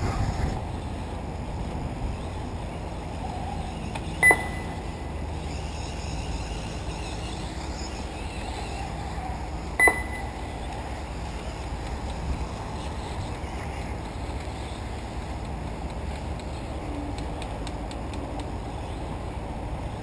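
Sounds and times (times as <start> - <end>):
wind noise on microphone: 0.0 - 4.4
short electronic beeps: 4.2 - 5.0, 9.8 - 10.5.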